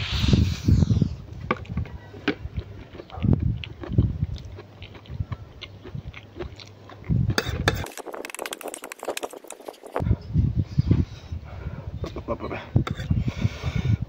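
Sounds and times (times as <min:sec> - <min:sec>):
man chewing noodles: 0:02.4 - 0:10.0.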